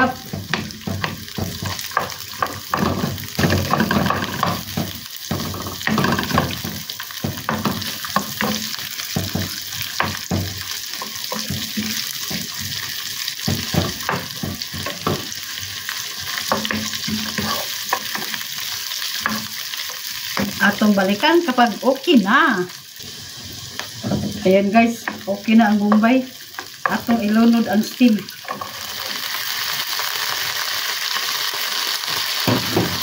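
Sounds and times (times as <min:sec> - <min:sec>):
wooden spoon scraping a pan: 0:00.0 - 0:20.9, 0:28.4 - 0:29.3
onion and garlic sizzling in oil: 0:00.0 - 0:33.0.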